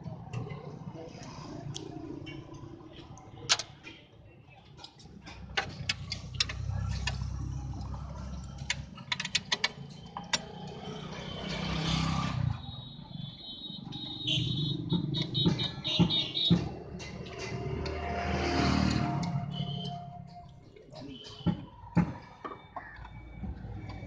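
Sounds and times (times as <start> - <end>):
vehicle engine hum: 4.9 - 12.4.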